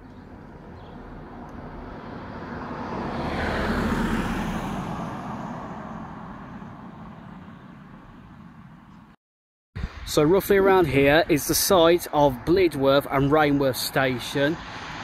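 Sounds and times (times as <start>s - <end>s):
car passing by: 0.6s - 8.7s, 14.1s - 15.0s.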